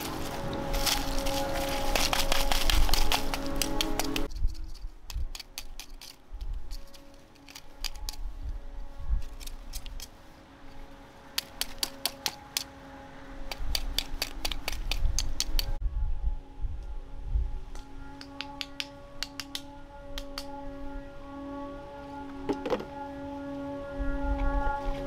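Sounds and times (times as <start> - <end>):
wire rake scratching through ash: 0.0 - 12.7.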